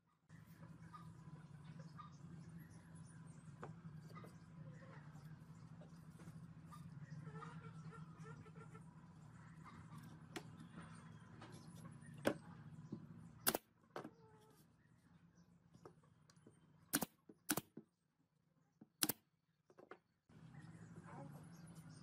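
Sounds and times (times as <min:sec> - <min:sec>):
nail gun shots: 0:13.4 - 0:13.7, 0:16.9 - 0:17.8.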